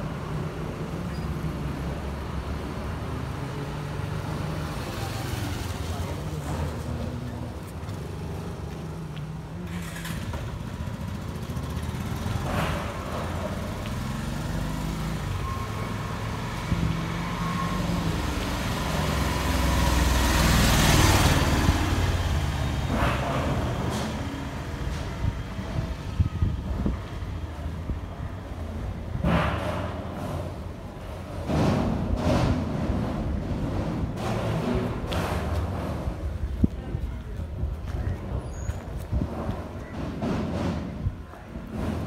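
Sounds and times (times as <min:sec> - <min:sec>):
vehicles passing on road: 0:00.0 - 0:42.0.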